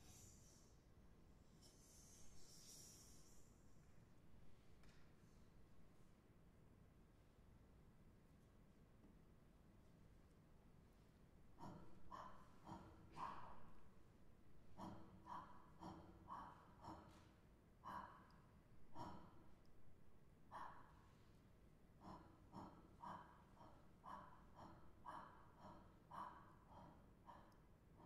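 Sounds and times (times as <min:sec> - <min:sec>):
short breathy puffs of air: 0:00.0 - 0:00.8.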